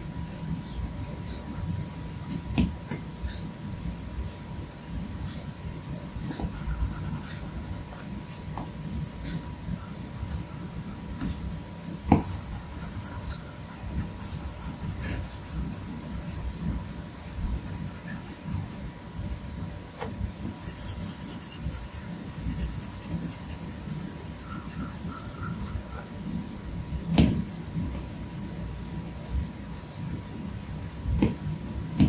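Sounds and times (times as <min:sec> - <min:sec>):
stylus stroking glass screen: 0:12.2 - 0:19.8, 0:20.4 - 0:26.0.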